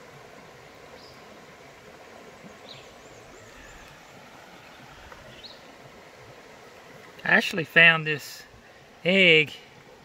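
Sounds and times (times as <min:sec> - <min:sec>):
steady background hiss: 0:00.0 - 0:10.0
warbling bird song: 0:00.9 - 0:01.4, 0:02.4 - 0:05.8.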